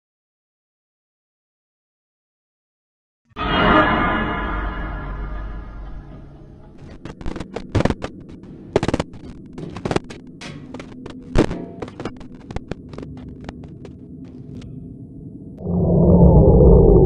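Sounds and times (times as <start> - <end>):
low steady drone: 3.4 - 17.0
sharp crackles and pops: 6.8 - 14.8.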